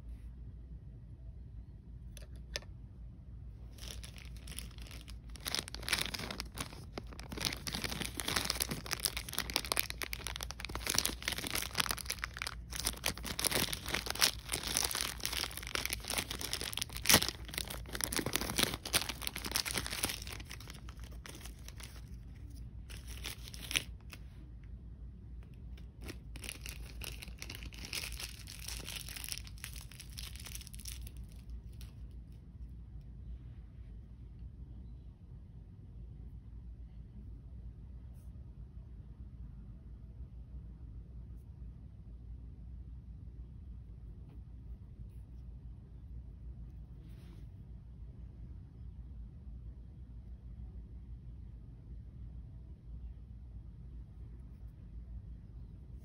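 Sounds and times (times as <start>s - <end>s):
plastic wrapper crinkling: 3.7s - 24.2s, 25.4s - 32.1s.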